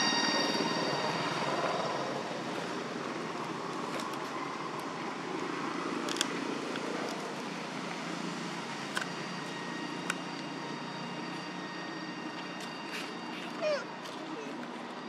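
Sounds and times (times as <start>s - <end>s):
faint high tones: 0.0s - 3.4s
steady background noise: 0.0s - 15.0s.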